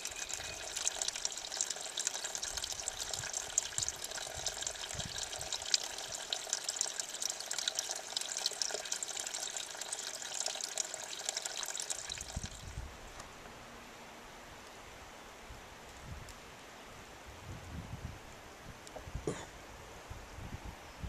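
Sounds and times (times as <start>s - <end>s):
water trickling and dripping: 0.0s - 12.8s.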